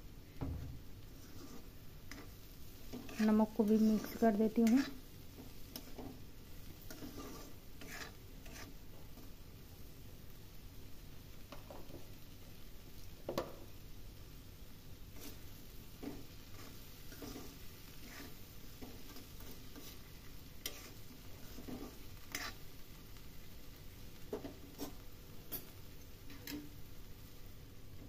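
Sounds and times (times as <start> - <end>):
spatula scraping a pan: 1.0 - 9.4, 15.1 - 23.2, 24.2 - 26.7.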